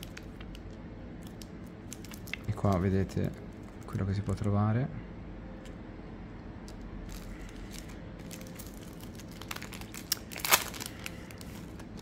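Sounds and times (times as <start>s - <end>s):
card pack wrapper crinkling: 0.0s - 4.0s, 6.7s - 12.0s.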